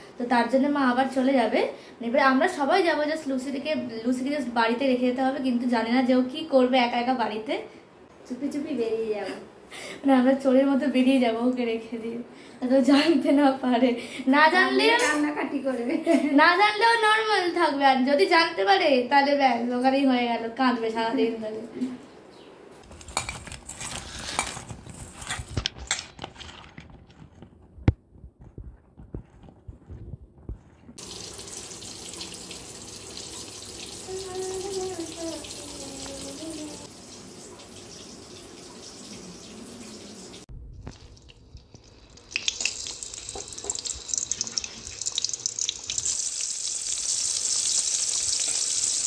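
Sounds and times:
kitchen knocks and clatter: 22.9 - 30.5
vegetables sizzling in oil: 31.0 - 40.4, 41.9 - 49.0
water running: 31.0 - 49.0.

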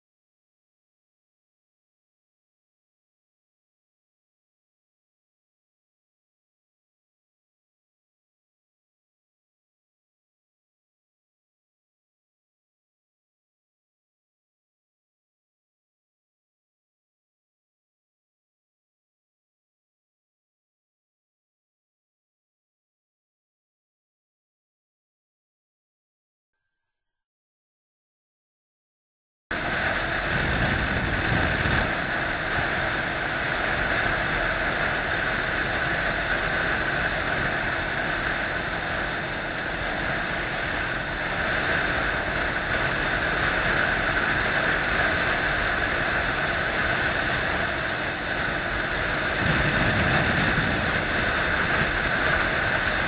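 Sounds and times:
motorcycle engine running: 29.5 - 53.0
road noise: 29.5 - 53.0
wind rush on microphone: 29.5 - 53.0.

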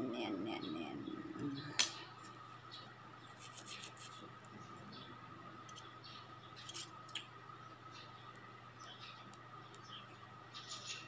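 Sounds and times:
stick scraping under fingernails: 3.4 - 4.3.

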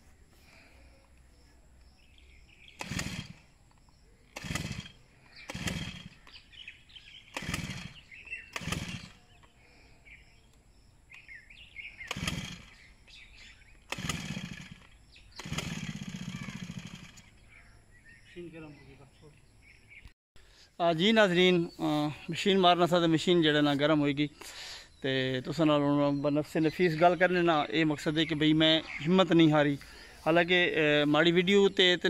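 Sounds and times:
brush cutter recoil starter pulls: 2.7 - 9.6, 12.0 - 17.3
engine turning over briefly: 2.8 - 3.4, 4.3 - 6.4, 7.3 - 9.4, 12.0 - 12.8, 13.9 - 17.4.

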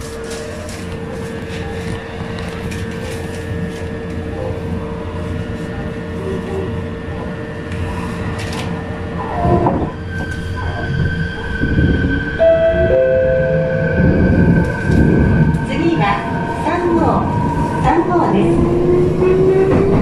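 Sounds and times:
electric train rumble: 0.0 - 20.0
train clatter: 14.4 - 20.0.

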